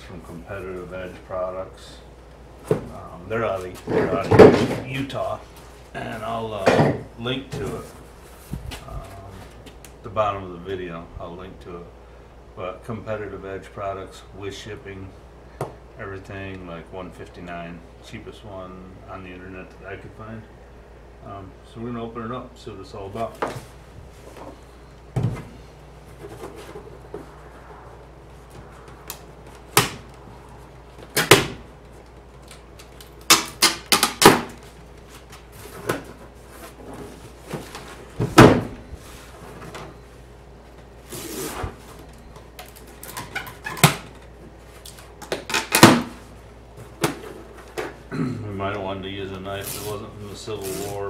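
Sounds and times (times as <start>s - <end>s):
cardboard box knocks and thumps: 25.2s - 25.6s
scraping rustle: 25.4s - 27.7s, 49.5s - 51.0s.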